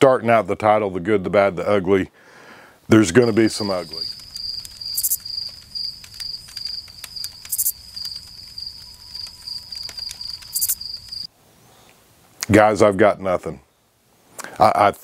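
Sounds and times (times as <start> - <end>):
crickets chirping: 2.9 - 11.3
small clicks and crackles: 3.6 - 11.3.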